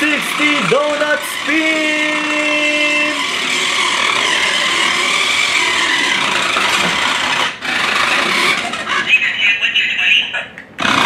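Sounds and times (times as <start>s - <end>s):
toy car electric motor whirring: 0.0s - 9.1s, 10.8s - 11.0s
tyres scrubbing: 0.1s - 9.0s.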